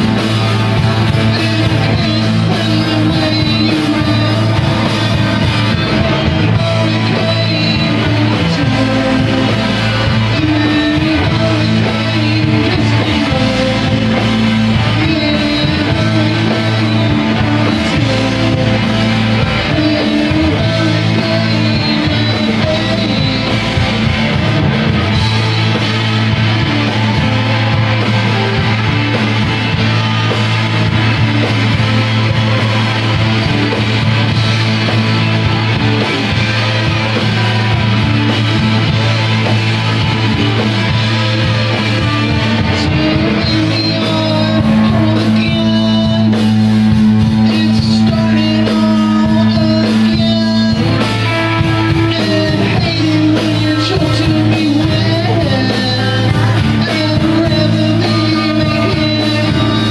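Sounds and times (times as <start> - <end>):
distorted electric guitars: 0.0 - 59.9
rock band playing live: 0.0 - 59.9.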